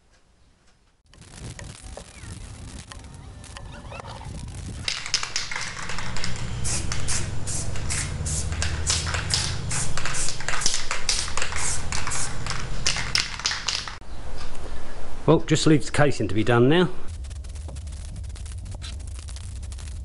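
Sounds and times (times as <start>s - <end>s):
aerosol spray hissing: 4.9s - 14.0s
low hum: 16.9s - 20.0s.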